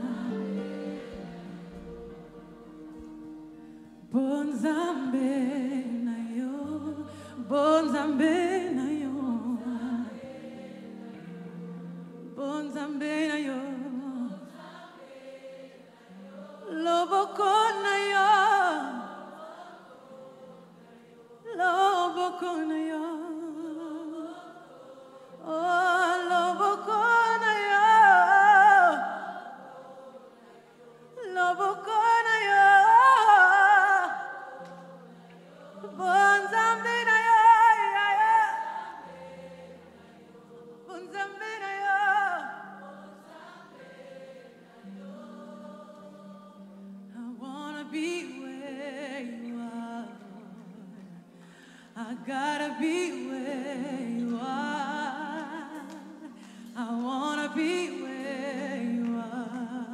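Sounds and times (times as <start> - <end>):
woman singing with vibrato: 0.0 - 1.9, 4.0 - 10.4, 12.3 - 14.9, 16.2 - 20.3, 21.2 - 29.9, 30.8 - 39.5, 40.4 - 43.5, 47.1 - 51.2, 52.0 - 59.9
backing singers: 0.0 - 50.7.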